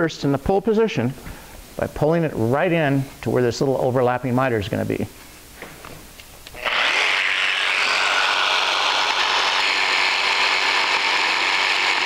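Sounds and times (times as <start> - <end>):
jigsaw cutting wood: 6.6 - 12.0.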